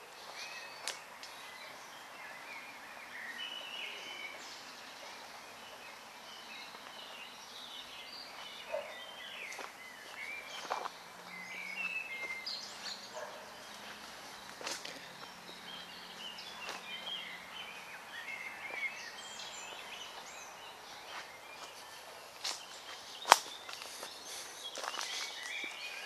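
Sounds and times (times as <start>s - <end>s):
small birds chirping and warbling: 0.0s - 26.0s
footsteps on twigs and leaves: 0.2s - 1.5s, 8.2s - 26.0s.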